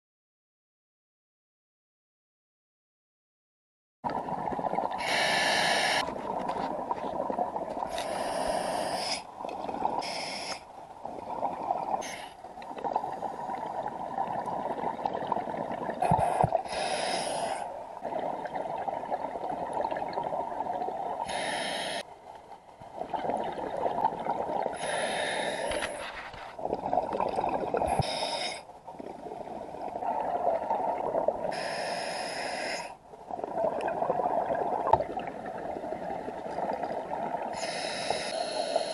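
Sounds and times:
exhaled bubbles gurgling: 0:04.0 - 0:22.0, 0:22.8 - 0:38.9
hissing regulator inhale: 0:05.0 - 0:06.0, 0:07.9 - 0:09.3, 0:10.0 - 0:10.7, 0:16.0 - 0:17.7, 0:21.2 - 0:22.1, 0:24.8 - 0:26.4, 0:27.9 - 0:28.7, 0:31.5 - 0:33.0, 0:37.6 - 0:38.9.

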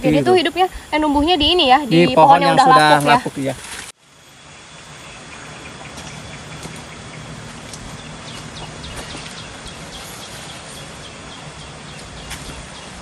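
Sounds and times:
steady outdoor hiss: 0:00.0 - 0:13.0
footsteps on forest trail: 0:05.8 - 0:13.0.

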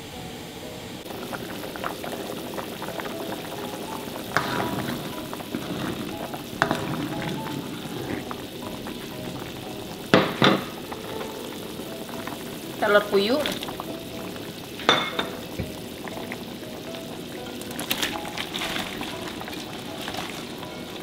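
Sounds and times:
broth bubbling in a wok: 0:01.0 - 0:21.0
wooden spoon knocking on pan: 0:10.1 - 0:10.8, 0:14.8 - 0:15.8.

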